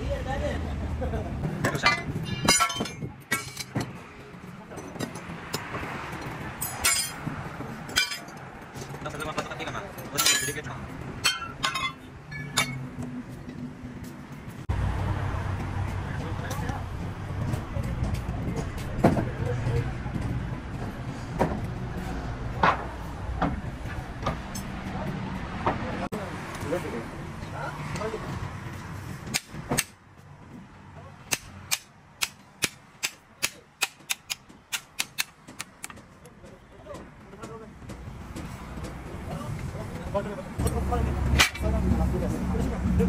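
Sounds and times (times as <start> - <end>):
metal parts clinking: 1.6 - 3.8, 6.6 - 7.2, 7.9 - 8.4, 10.2 - 12.8.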